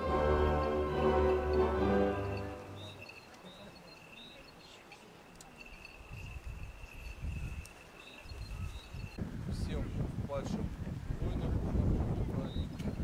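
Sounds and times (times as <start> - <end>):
music: 0.0 - 3.1
short high bird chirps: 2.2 - 4.8
wind gusts on microphone: 5.7 - 13.0.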